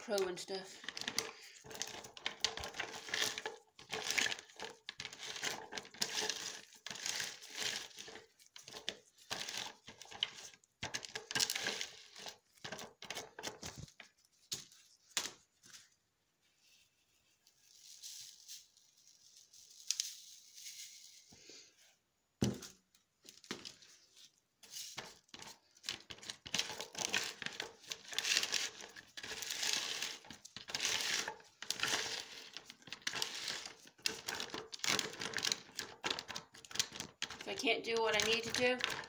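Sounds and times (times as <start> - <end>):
spatula scraping ice cubes: 0.0 - 13.4, 26.3 - 36.0.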